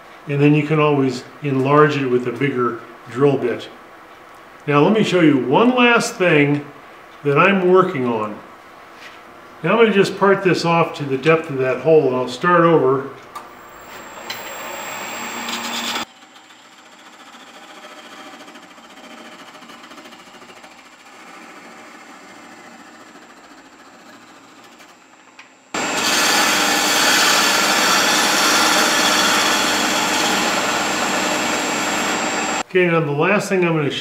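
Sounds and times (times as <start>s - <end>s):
thin high whine: 13.5s - 16.0s
tool cutting wood on lathe: 13.6s - 25.0s, 25.8s - 32.6s.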